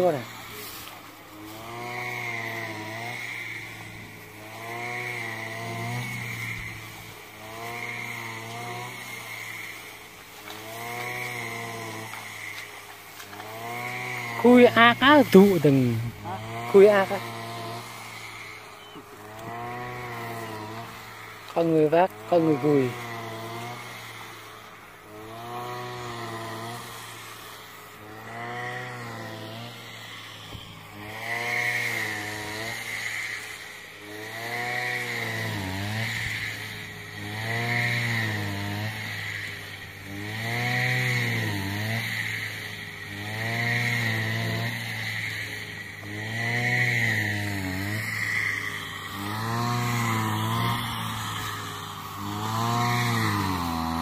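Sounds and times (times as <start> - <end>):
small mower engine running: 0.0 - 54.0.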